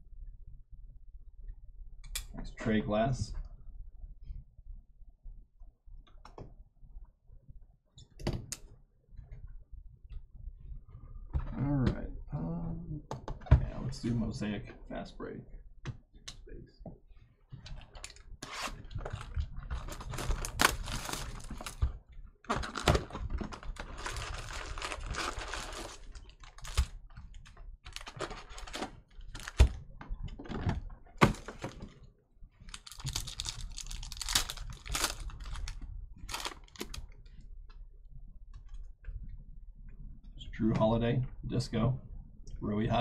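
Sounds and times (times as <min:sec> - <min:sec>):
foil packs crinkling and tearing: 0:18.4 - 0:27.2, 0:27.9 - 0:29.8, 0:32.7 - 0:37.0.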